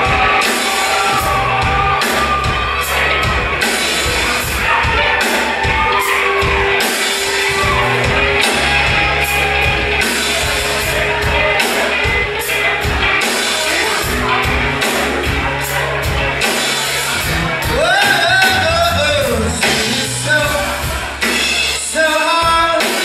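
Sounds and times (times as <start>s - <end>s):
electric guitars: 0.0s - 21.9s
bass guitar: 0.0s - 23.0s
drum kit and cymbal hits: 0.0s - 23.0s.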